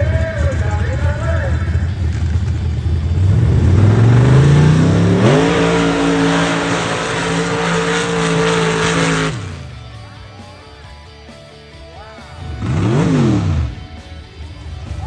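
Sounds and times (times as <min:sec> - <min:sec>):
vehicle engine revving: 0:00.0 - 0:10.0, 0:12.4 - 0:14.1.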